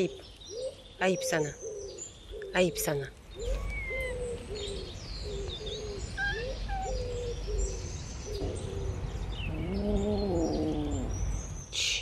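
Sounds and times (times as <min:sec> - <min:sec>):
small birds chirping: 0:00.0 - 0:12.0
dove cooing: 0:03.4 - 0:07.8.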